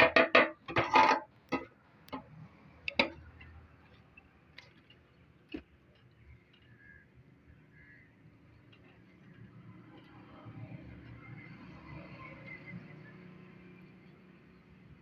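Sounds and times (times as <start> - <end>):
metal rods tapping on fuel tank: 0.0 - 2.3, 2.9 - 3.5.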